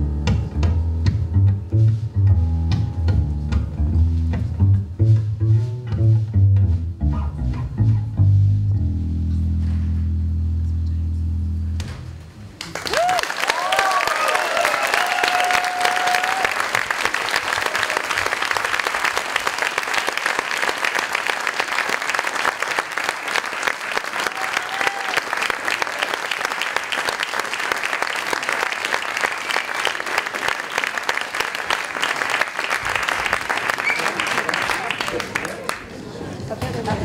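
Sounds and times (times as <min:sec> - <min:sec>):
audience cheering: 0:12.6 - 0:35.9
audience applauding: 0:12.6 - 0:36.4.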